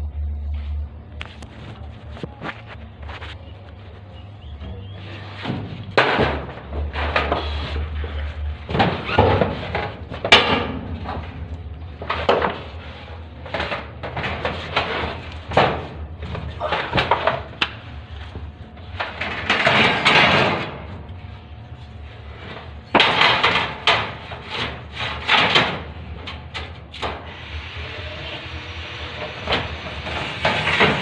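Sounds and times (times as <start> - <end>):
low steady hum: 0.0 - 31.0
knocks and bangs on steel frame: 4.7 - 7.6, 8.6 - 12.8, 13.4 - 17.8, 19.0 - 21.0, 22.9 - 27.2.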